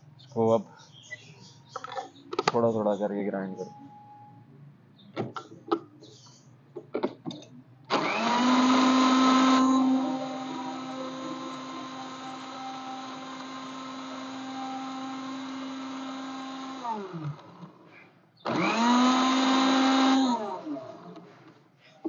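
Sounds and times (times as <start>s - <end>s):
electric mixer grinder motor: 7.9s - 17.8s, 18.5s - 21.0s.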